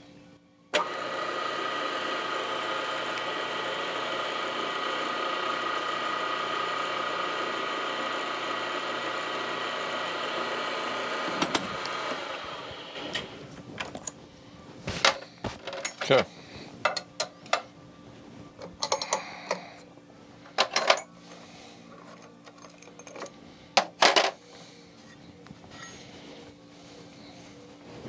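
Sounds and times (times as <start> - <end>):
drill spindle whining: 0.7 - 13.5.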